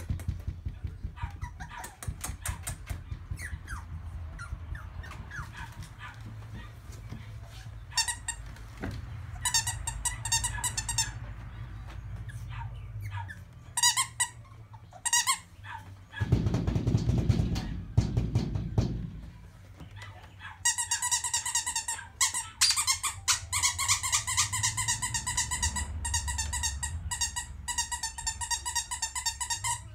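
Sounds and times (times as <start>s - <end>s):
squeaky plush toy squeaking: 1.2s - 5.8s, 7.9s - 8.4s, 9.4s - 11.2s, 13.0s - 15.8s, 20.5s - 29.9s.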